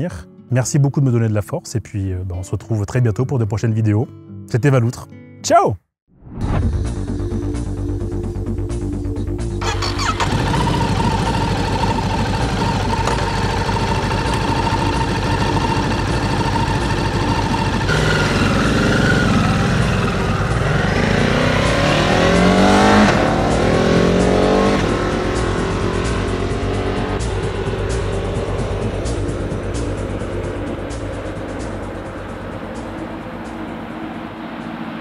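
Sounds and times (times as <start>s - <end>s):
background music: 0.0s - 5.8s, 6.4s - 35.0s
vehicle engine accelerating: 9.6s - 35.0s.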